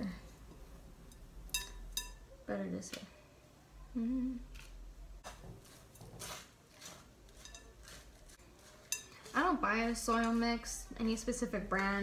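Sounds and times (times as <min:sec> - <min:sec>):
woman humming: 0:03.9 - 0:04.5.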